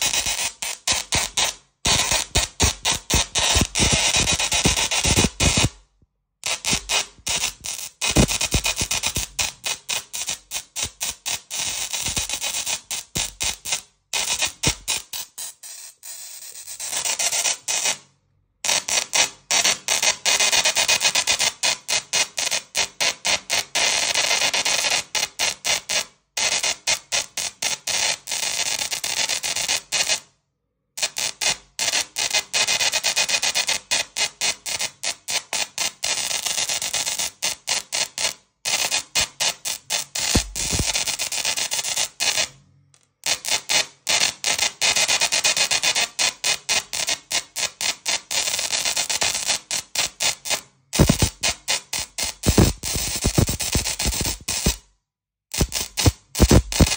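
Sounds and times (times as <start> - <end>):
tesla coil sparks buzzing a tune: 0.0 - 5.8, 6.4 - 18.0, 31.0 - 42.5, 43.2 - 54.8, 55.5 - 56.9.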